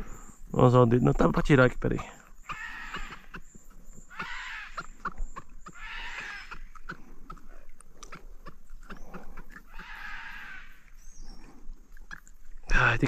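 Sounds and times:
catfish croaking: 2.4 - 10.9.

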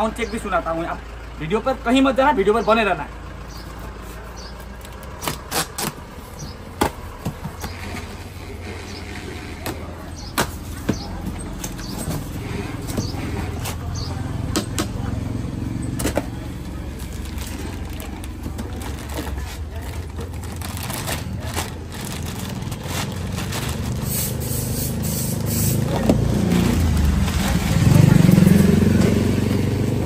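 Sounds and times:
plastic wrapping rustling: 16.8 - 24.6.

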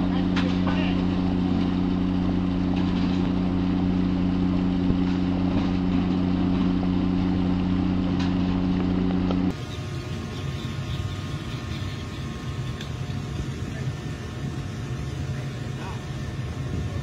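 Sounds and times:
low rumble: 0.0 - 9.6
boat engine droning: 0.0 - 17.0.

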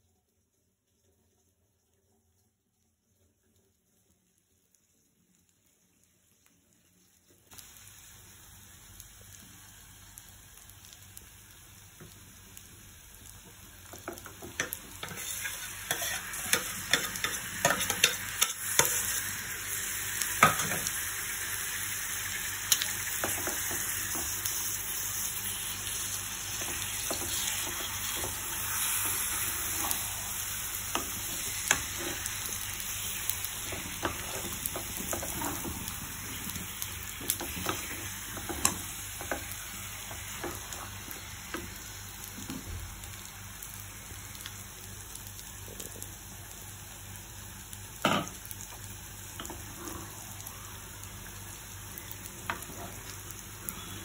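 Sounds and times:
food sizzling in a pan: 3.0 - 54.0
utensil scraping pan: 15.0 - 19.1.

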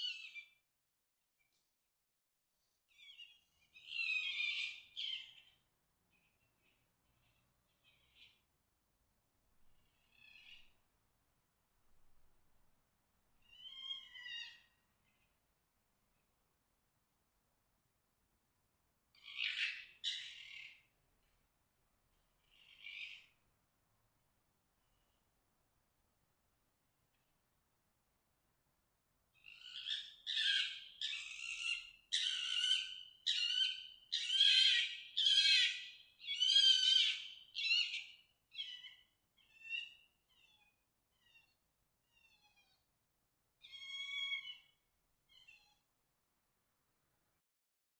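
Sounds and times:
fox screaming calls: 29.6 - 42.8, 43.6 - 45.7.

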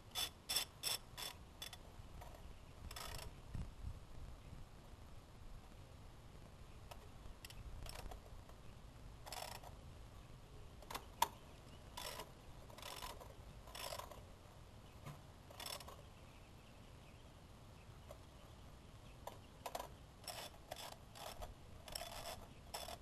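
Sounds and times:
ratchet pawl clicking: 9.3 - 9.7, 12.0 - 14.2, 15.5 - 16.0, 19.6 - 23.0.

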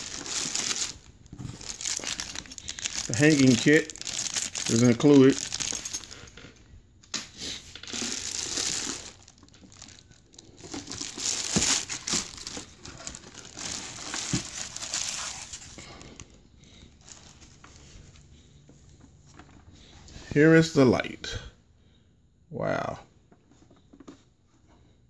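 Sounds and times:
plastic wrapping crinkling: 0.0 - 6.2, 7.8 - 16.2.

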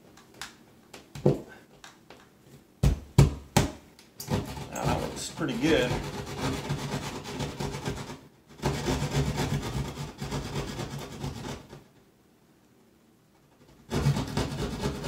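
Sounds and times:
hand saw sawing drywall: 4.2 - 11.9, 13.6 - 15.0.

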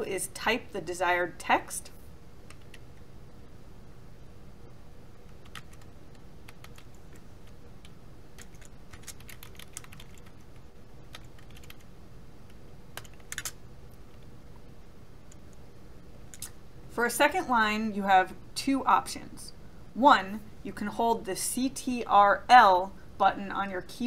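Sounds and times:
faint low hum: 0.0 - 24.0
computer keyboard typing: 2.5 - 2.9, 5.2 - 11.9, 12.5 - 14.2.

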